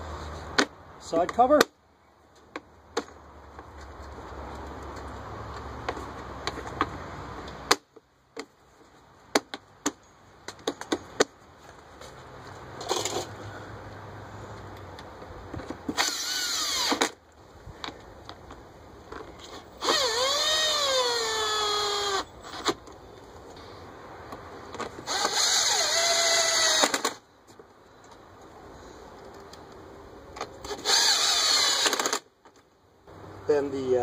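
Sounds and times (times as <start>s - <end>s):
cordless drill whining: 15.9s - 17.1s, 19.8s - 22.8s, 25.0s - 27.2s, 30.6s - 32.2s.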